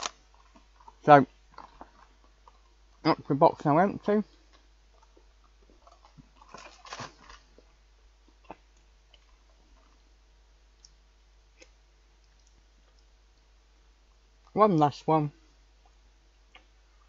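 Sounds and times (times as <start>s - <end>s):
quiet eating clicks: 0.0s - 3.3s, 4.3s - 10.0s, 10.7s - 11.0s, 11.6s - 13.5s.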